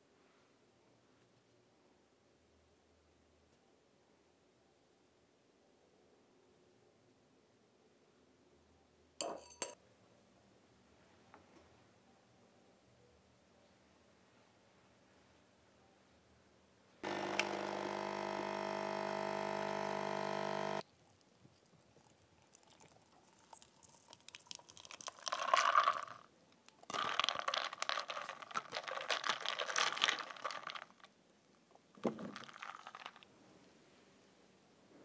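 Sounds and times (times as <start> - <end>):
mechanical hum: 17.0 - 20.8
milk pouring into a glass jar: 21.6 - 31.1, 32.0 - 33.2
ice cubes rattling against glass: 23.4 - 26.2, 26.9 - 31.1, 32.0 - 33.2.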